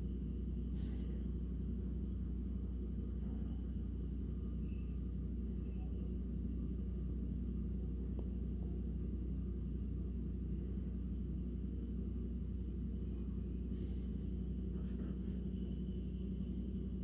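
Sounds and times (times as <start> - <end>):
diesel engines rumbling: 0.0 - 17.0
short hiss: 13.7 - 14.3.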